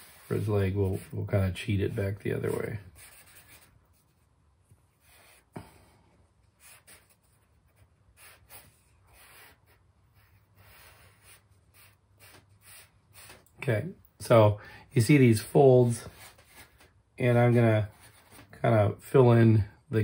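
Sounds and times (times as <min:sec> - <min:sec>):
charcoal scratching on paper: 0:00.0 - 0:04.3, 0:06.6 - 0:13.5.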